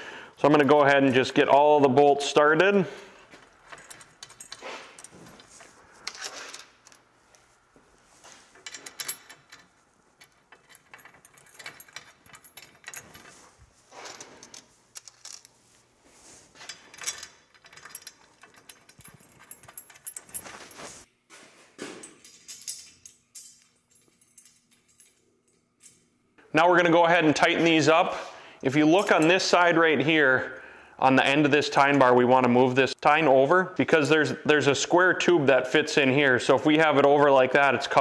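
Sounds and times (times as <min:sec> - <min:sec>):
small metal hardware clinking: 0:02.6 - 0:07.4, 0:08.5 - 0:15.5, 0:16.6 - 0:21.1, 0:22.0 - 0:26.2.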